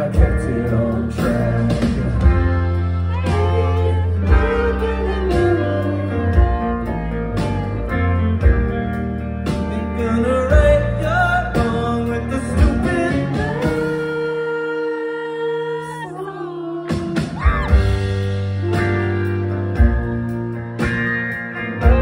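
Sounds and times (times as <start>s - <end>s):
person singing: 0.0s - 8.7s, 9.5s - 20.6s
drums: 0.0s - 14.7s, 16.8s - 22.0s
electric guitars: 0.0s - 22.0s.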